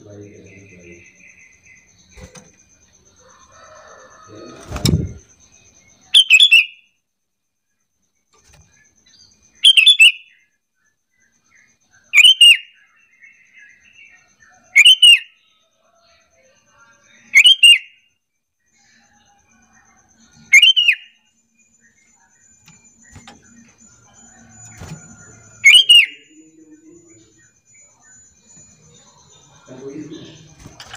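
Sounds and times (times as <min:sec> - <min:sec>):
bird calling: 0:00.0 - 0:06.9, 0:08.6 - 0:10.5, 0:11.3 - 0:15.5, 0:19.5 - 0:21.3, 0:21.9 - 0:30.9
faint chirping: 0:00.0 - 0:30.9.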